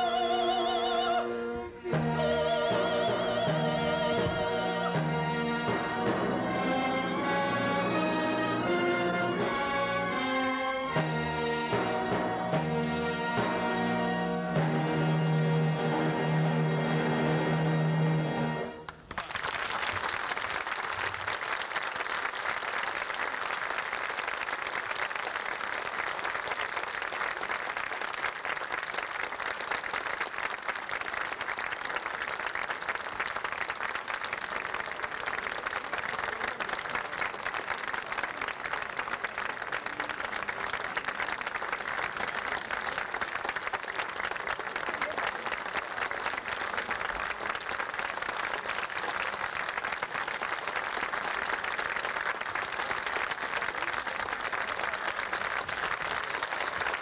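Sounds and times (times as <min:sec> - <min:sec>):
large audience applauding: 0:18.8 - 0:57.0.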